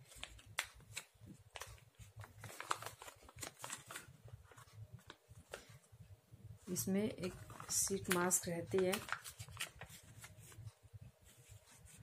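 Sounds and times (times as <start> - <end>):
packet crinkling: 0.0 - 5.8, 7.2 - 10.4.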